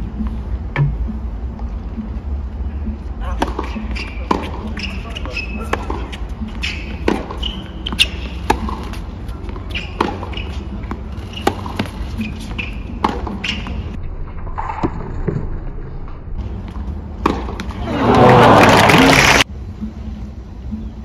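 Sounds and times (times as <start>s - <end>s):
tennis ball bouncing: 0.2s - 1.2s, 2.8s - 14.0s, 16.6s - 17.8s
racket striking tennis ball: 3.2s - 13.9s, 17.2s - 17.8s
crowd hum: 17.7s - 19.4s.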